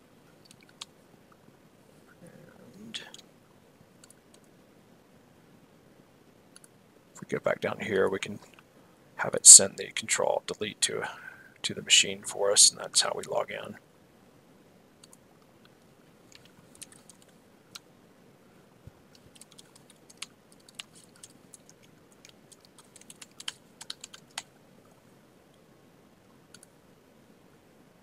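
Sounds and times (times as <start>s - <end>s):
typing on computer keyboard: 0.4s - 0.9s, 16.3s - 17.3s, 19.1s - 24.5s.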